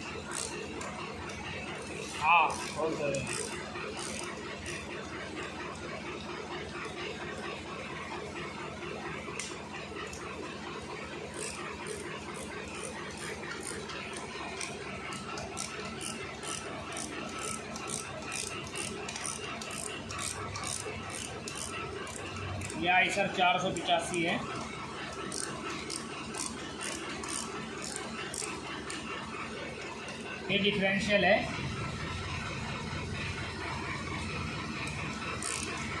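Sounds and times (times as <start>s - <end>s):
ratchet wrench clicking: 0.2s - 4.9s, 11.4s - 22.8s, 24.5s - 29.0s, 34.8s - 36.0s.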